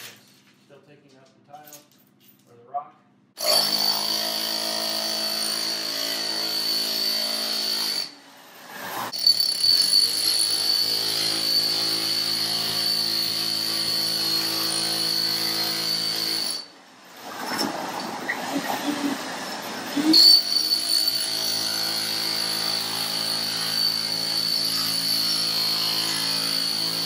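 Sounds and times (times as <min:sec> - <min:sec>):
electric chipping hammer: 0:03.4 - 0:16.7, 0:19.4 - 0:27.0.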